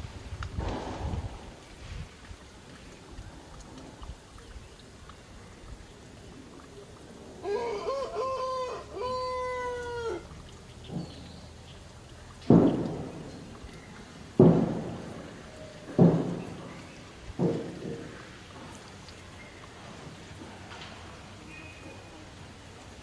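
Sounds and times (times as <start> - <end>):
loud thumps: 12.4 - 13.6, 14.3 - 18.3.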